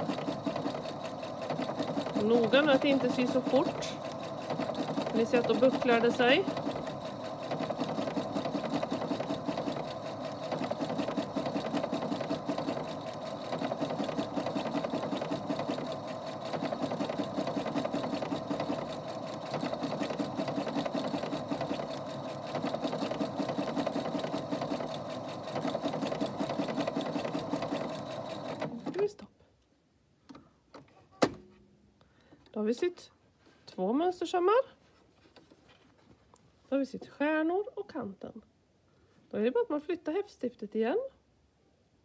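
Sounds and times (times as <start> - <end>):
sewing machine needle patter: 0.0 - 29.1.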